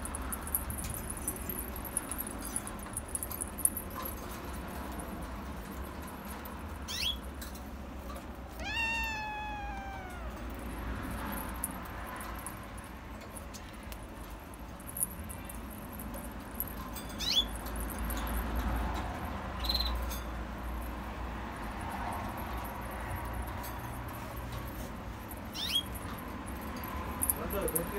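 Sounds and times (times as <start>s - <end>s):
short high-pitched squeaks: 8.6s - 10.5s
kitten meowing: 8.6s - 10.6s.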